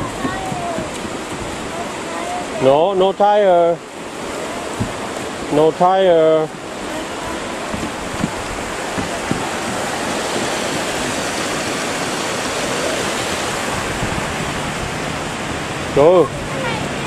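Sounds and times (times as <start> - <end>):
river rushing over rapids: 0.0 - 17.0
light knocks: 4.8 - 5.1, 7.7 - 10.9.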